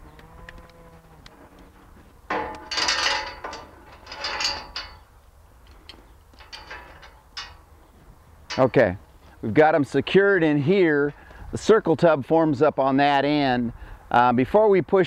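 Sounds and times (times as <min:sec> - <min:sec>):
metal gate clanking: 0:02.2 - 0:05.1, 0:06.4 - 0:07.7, 0:08.5 - 0:08.9.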